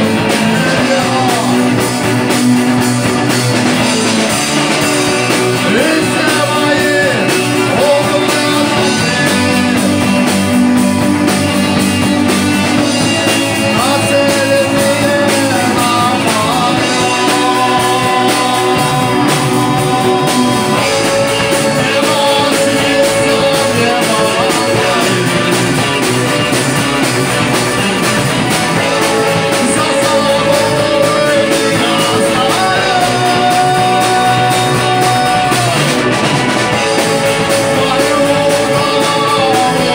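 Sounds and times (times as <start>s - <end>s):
drum kit: 0.0s - 39.9s
electric guitar: 0.0s - 39.9s
keyboards: 0.0s - 39.9s
lead vocal long held notes: 12.8s - 26.0s, 28.9s - 36.2s.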